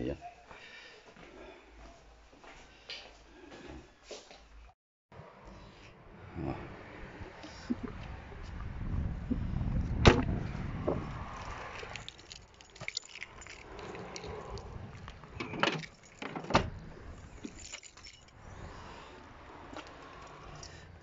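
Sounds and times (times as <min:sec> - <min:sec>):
car door shutting with a thud: 0:10.0 - 0:11.0
keys jangling: 0:11.4 - 0:18.4.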